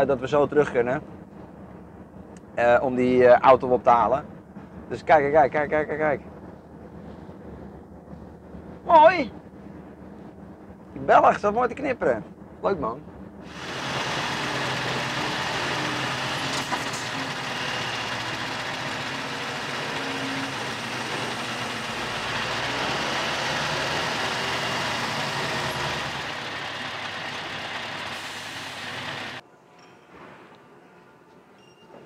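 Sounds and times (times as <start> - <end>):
truck engine droning: 13.4 - 29.4.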